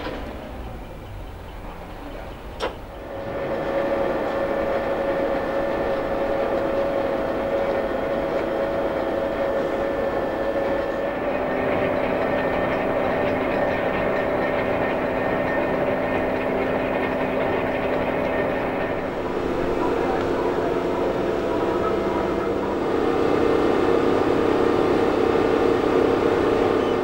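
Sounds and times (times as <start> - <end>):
crane diesel engine running: 0.0 - 27.0
steady whine: 0.0 - 27.0
low hum: 7.8 - 27.0.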